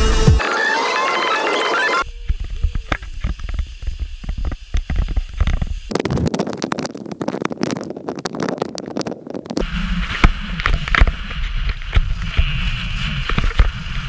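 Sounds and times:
wind rumble on microphone: 2.1s - 14.0s
snowboard scraping over snow: 9.6s - 14.0s.

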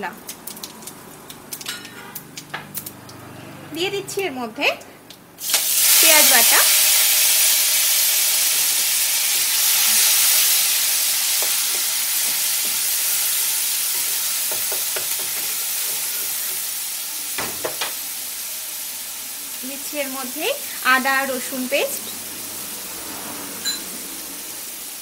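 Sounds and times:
onion paste sizzling in hot oil: 5.4s - 25.0s.

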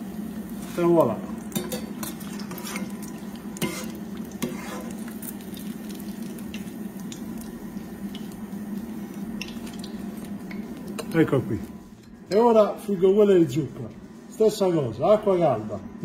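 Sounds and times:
hot oil sizzling: 0.0s - 15.7s
metal skimmer scraping pan: 1.6s - 3.0s, 3.6s - 5.0s.

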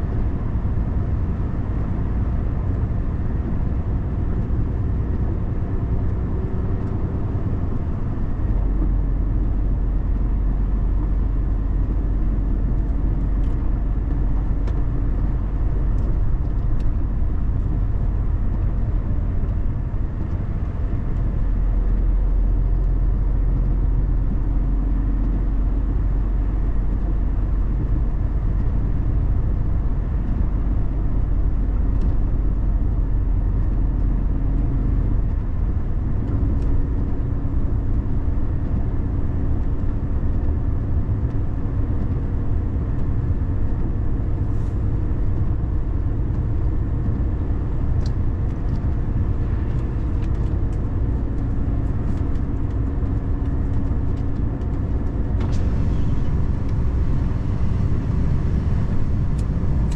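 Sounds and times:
car engine and tyre noise: 0.0s - 59.9s.

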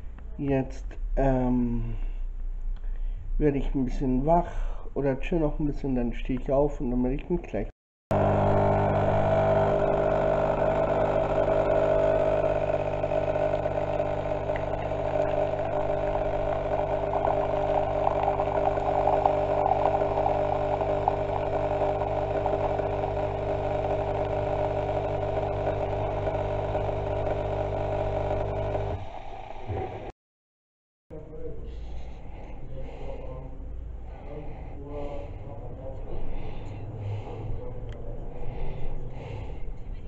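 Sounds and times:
coffee machine pump humming: 8.1s - 30.1s.

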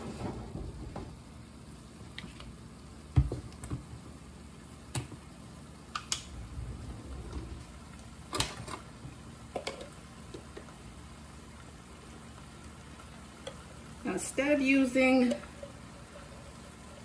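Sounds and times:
faint low hum: 5.9s - 9.2s.

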